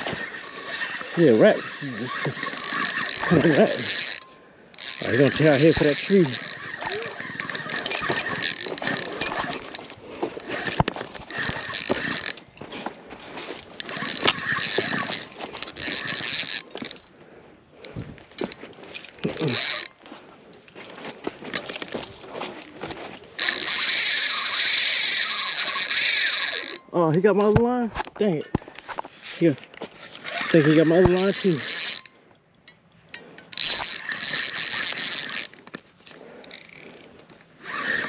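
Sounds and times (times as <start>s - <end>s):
fishing reel cranking whir: 0.0s - 12.6s, 13.5s - 17.1s, 17.8s - 20.0s, 23.4s - 27.2s, 30.0s - 32.2s, 33.3s - 38.0s
reel drag buzzing: 0.0s - 20.0s, 23.3s - 27.2s, 30.0s - 32.2s, 33.2s - 38.0s.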